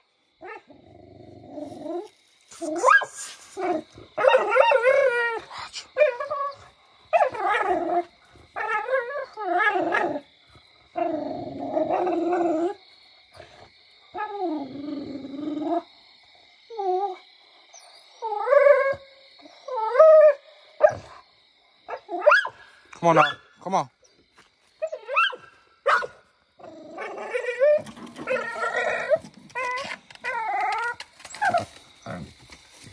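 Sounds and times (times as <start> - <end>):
dog whining and howling: 2.8 - 10.2, 10.9 - 12.8, 14.1 - 15.9, 16.7 - 21.2, 21.9 - 22.6, 24.8 - 32.3.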